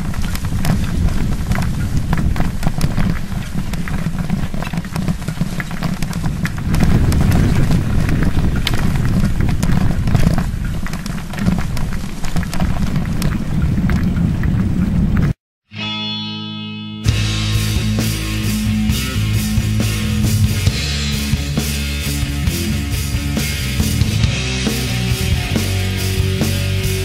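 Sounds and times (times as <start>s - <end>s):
bicycle clicks and rattles: 0.0s - 15.3s
wind buffeting microphone: 0.0s - 15.4s.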